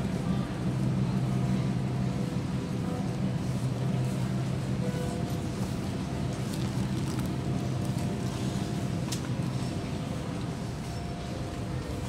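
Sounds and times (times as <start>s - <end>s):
low machine drone: 0.0s - 12.0s.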